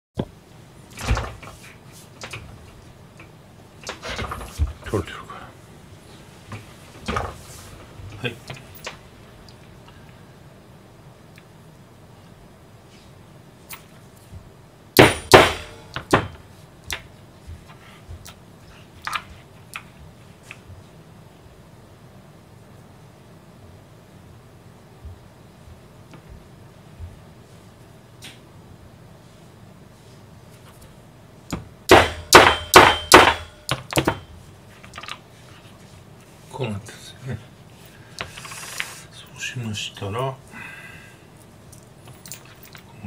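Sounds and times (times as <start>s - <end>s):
hatchet striking metal rod: 15.0s - 16.3s, 31.9s - 34.2s
light clicks of metal parts: 41.4s - 43.0s.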